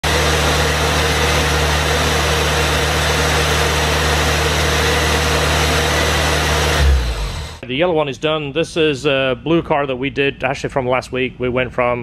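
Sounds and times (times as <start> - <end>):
car engine idling: 0.0 - 7.6.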